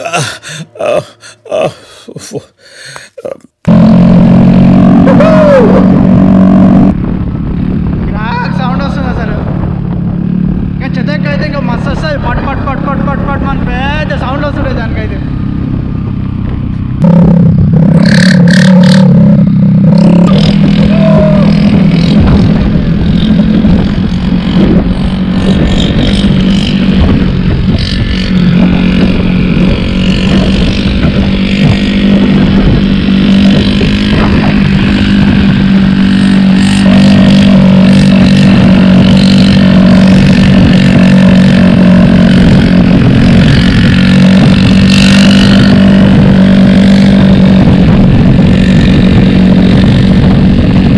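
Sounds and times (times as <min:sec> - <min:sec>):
scooter engine open exhaust drone: 0:15.3 - 0:50.9.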